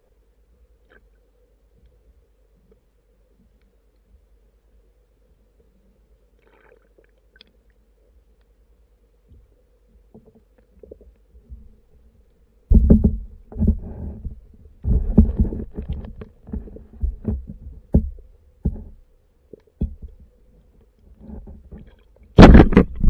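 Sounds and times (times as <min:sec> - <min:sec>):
faint steady hum: 0:00.0 - 0:23.0
muffled underwater thumps and knocks: 0:12.7 - 0:20.4, 0:21.1 - 0:23.0.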